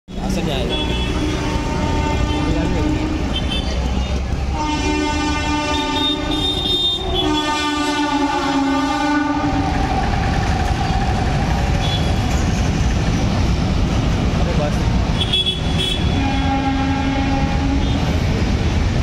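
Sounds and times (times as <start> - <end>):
freight train rumbling past: 0.1 - 19.0
locomotive horn blasts: 0.7 - 3.8, 4.5 - 9.7, 15.2 - 18.2.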